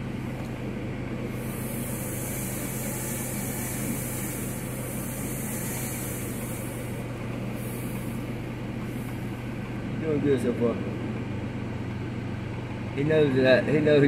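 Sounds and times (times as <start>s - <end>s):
high hiss: 1.3s - 7.0s.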